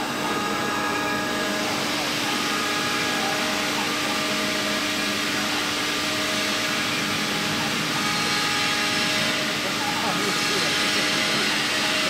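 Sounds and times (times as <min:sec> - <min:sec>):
cnc router spindle whine: 0:00.0 - 0:12.0.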